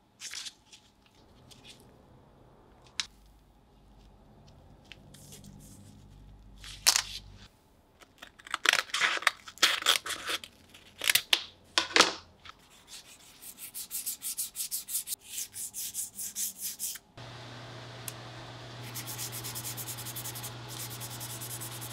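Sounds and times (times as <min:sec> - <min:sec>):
plastic sanding strokes: 0:18.8 - 0:21.9
scissors cutting sandpaper: 0:18.8 - 0:21.9.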